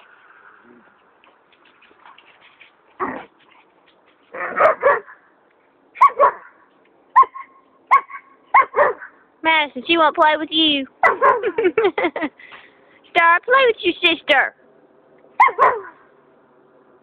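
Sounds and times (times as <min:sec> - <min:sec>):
dog barking: 0:04.4 - 0:05.2, 0:06.0 - 0:06.6, 0:07.2 - 0:09.2, 0:11.0 - 0:11.6, 0:15.4 - 0:16.0.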